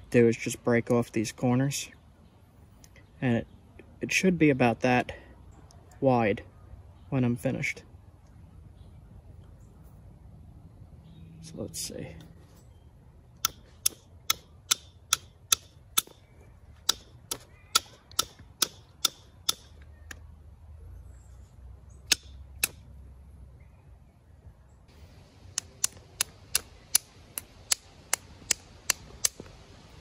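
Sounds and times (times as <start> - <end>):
antler tapping stone clicks: 13.4 - 20.2, 22.1 - 22.8, 25.5 - 29.6.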